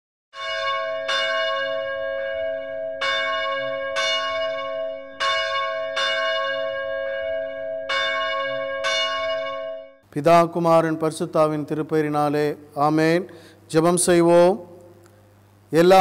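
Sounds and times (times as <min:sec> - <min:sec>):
church bell tolling: 0:00.4 - 0:10.0.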